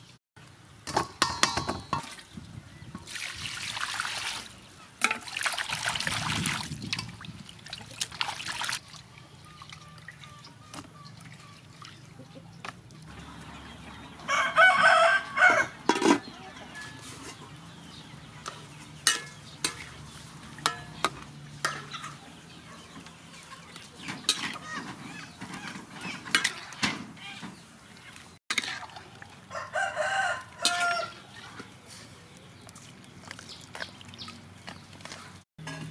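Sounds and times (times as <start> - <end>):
metal ladle clinking against wok: 0.9 - 2.2, 18.4 - 22.2, 35.6 - 35.9
rooster crowing: 14.3 - 15.8, 29.5 - 31.2.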